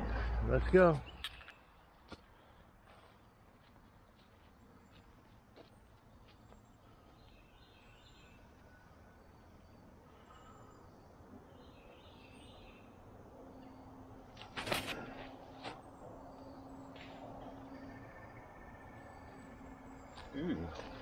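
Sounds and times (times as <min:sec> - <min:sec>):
bird chirps: 0:00.0 - 0:01.9, 0:06.2 - 0:14.0
rush of thrown disc: 0:14.4 - 0:15.8.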